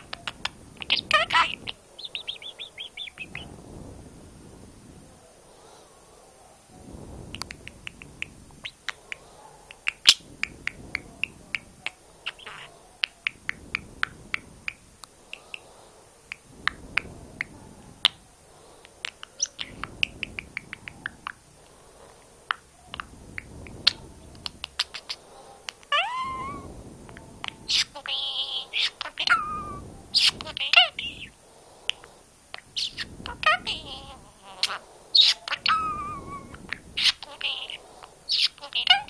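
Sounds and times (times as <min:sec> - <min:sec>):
budgerigar chattering: 0:00.0 - 0:03.5, 0:08.6 - 0:13.4, 0:24.4 - 0:25.2, 0:27.5 - 0:31.3, 0:32.8 - 0:39.0
budgerigar warbling call: 0:00.3 - 0:03.4, 0:12.2 - 0:12.8, 0:27.6 - 0:31.3, 0:32.8 - 0:39.0.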